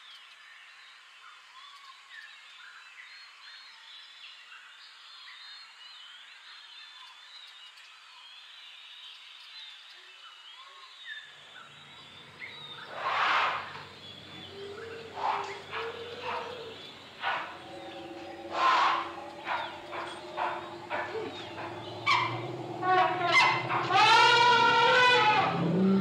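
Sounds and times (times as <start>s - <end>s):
small birds chirping: 11.5s - 26.0s
steady low hum: 11.7s - 26.0s
elephants rustling leaves and branches: 12.7s - 25.4s.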